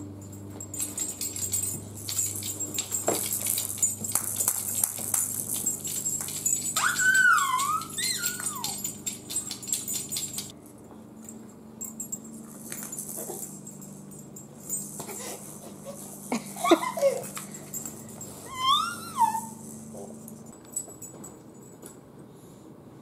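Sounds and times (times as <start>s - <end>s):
toy rattle beads rattling: 0.7s - 10.5s, 12.5s - 20.4s
high gliding squeals: 6.7s - 8.8s.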